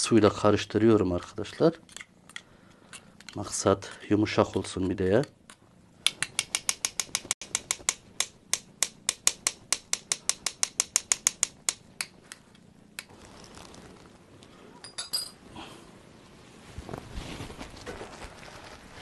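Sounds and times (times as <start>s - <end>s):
spoon clinking against bowl: 14.8s - 15.4s.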